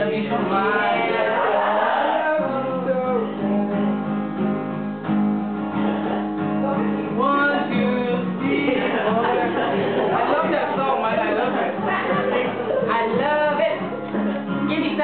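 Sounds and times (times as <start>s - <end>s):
person singing: 0.0s - 4.0s, 6.6s - 10.2s
acoustic guitar strumming: 0.0s - 15.0s.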